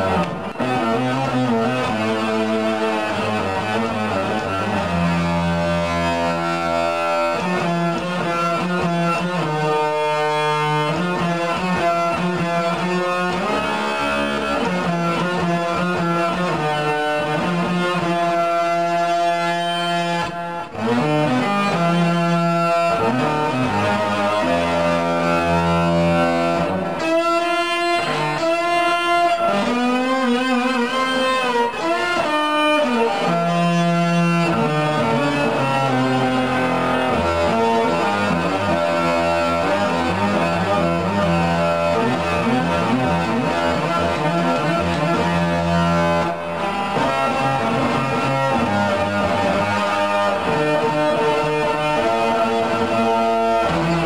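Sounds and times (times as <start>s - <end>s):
electric guitar solo: 0.0s - 54.0s.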